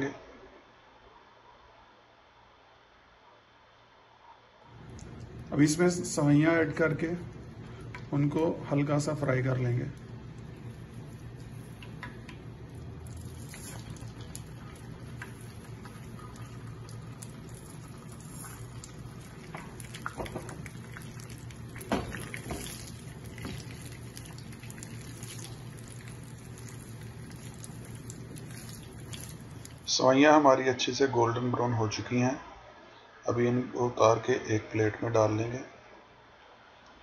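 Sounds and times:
noodles sizzling in oil: 9.7 - 29.9.

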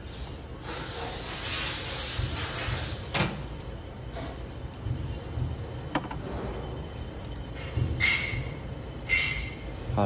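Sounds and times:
compressed air hissing: 0.6 - 3.3.

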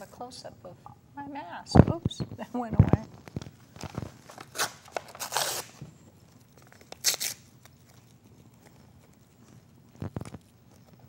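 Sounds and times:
paper tearing: 3.8 - 5.8, 6.6 - 9.2.

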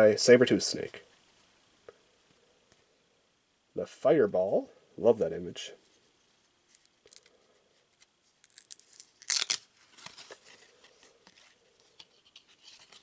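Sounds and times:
trading cards rustling and clicking: 7.9 - 13.0.

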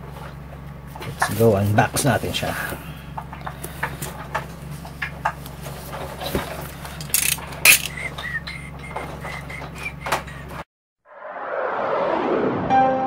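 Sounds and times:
packing tape ripping: 7.1 - 8.0.

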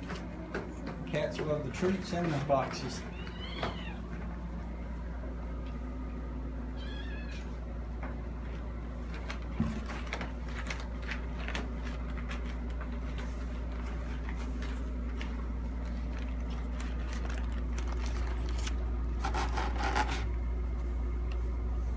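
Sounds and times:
steady low hum: 0.0 - 21.9
cat meowing: 3.0 - 4.2, 6.7 - 7.6
packing paper and cardboard rustling: 8.5 - 20.3.

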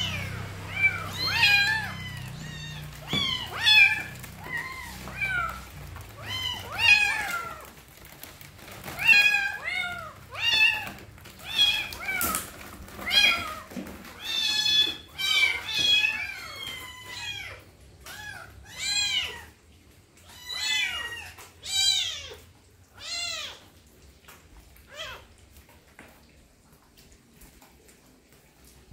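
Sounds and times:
kittens meowing: 0.0 - 19.6.

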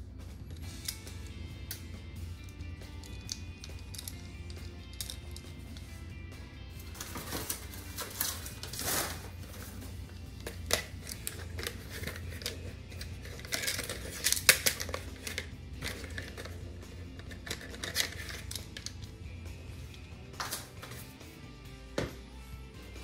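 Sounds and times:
background music: 0.0 - 23.0
plastic rustling: 6.8 - 16.6.

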